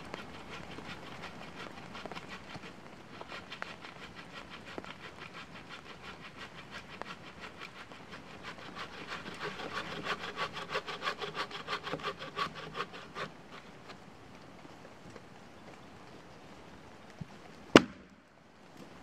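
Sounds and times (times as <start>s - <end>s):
hand saw cutting log: 0.1s - 13.9s.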